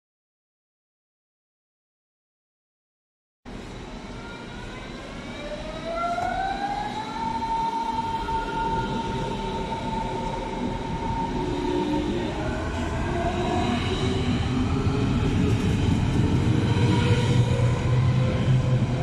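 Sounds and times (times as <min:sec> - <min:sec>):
train rumble: 0:03.5 - 0:19.0
electric train traction whine: 0:03.7 - 0:19.0.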